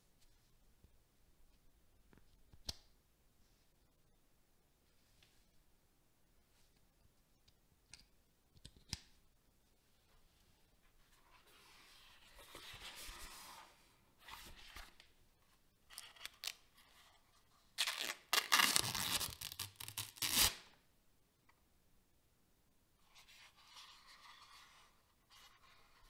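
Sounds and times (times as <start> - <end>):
packaging tearing crinkle: 17.8 - 20.6.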